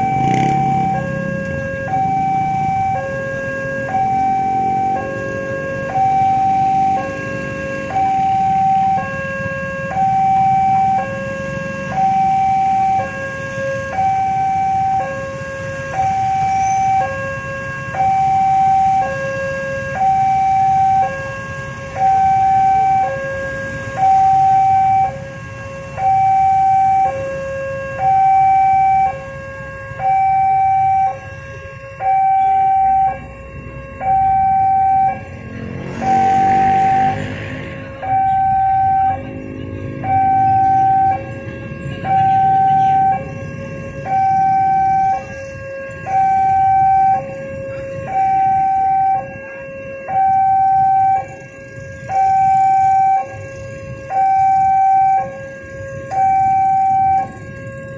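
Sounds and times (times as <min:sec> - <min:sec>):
motorcycle engines idling: 0:00.0 - 0:05.3, 0:34.0 - 0:49.2, 0:50.2 - 0:57.9
level crossing two-tone alarm: 0:00.0 - 0:57.9.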